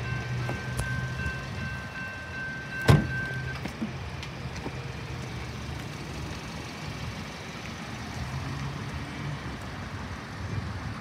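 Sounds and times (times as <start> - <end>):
vehicles idling and pulling away: 0.0 - 11.0.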